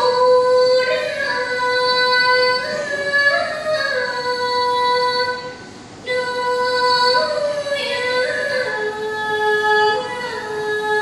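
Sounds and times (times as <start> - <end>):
girl singing: 0.0 - 11.0.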